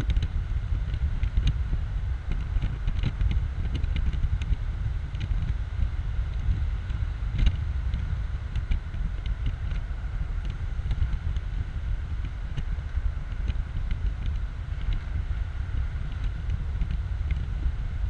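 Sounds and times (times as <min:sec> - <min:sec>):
road noise: 0:00.0 - 0:18.0
wind buffeting microphone: 0:00.0 - 0:18.0.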